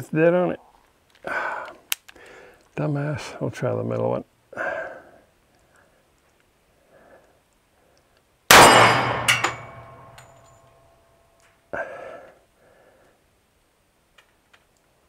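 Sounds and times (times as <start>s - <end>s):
pistol shot: 8.5s - 9.9s
ringing metallic clink: 8.5s - 10.9s.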